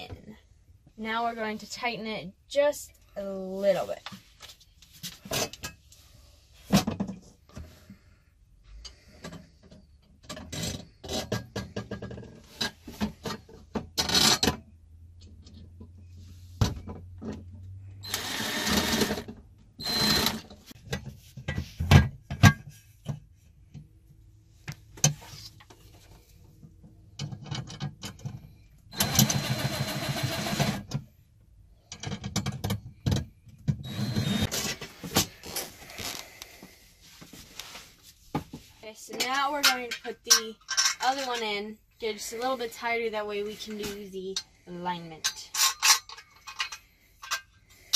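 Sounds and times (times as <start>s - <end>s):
cordless driver running: 18.0s - 20.4s, 29.0s - 30.8s, 33.9s - 34.5s.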